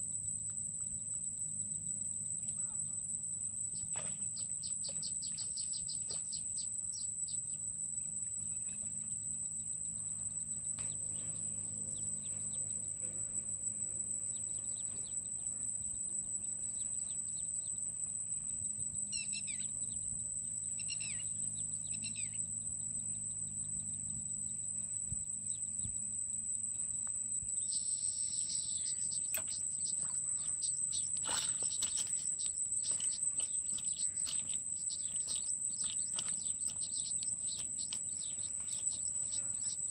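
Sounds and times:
high-pitched insect drone: 0.0 - 39.9
bird chirps: 3.7 - 7.6, 10.0 - 13.1, 14.2 - 15.5, 19.1 - 20.0, 20.7 - 22.5, 27.6 - 39.9
rustles knocks and splashes: 29.3 - 39.4.

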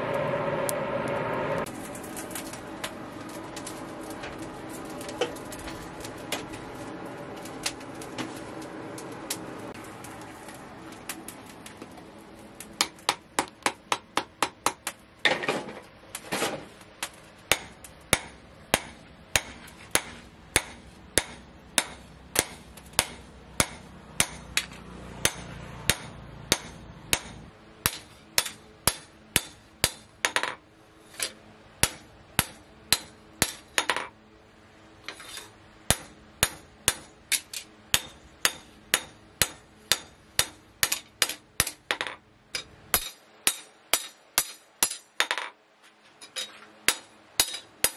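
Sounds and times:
hammer striking steel blade: 17.5 - 30.5, 31.2 - 34.0, 35.2 - 45.4, 46.9 - 47.9.

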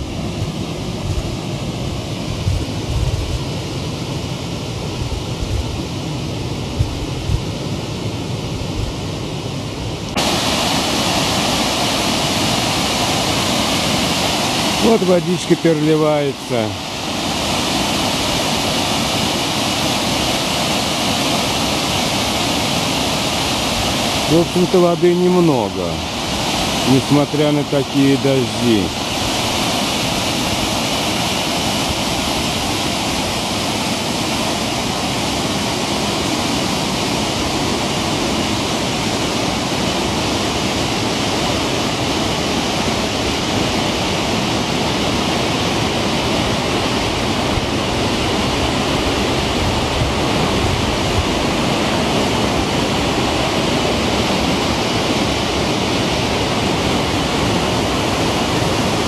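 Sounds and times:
water rushing down spillway: 0.0 - 59.0.

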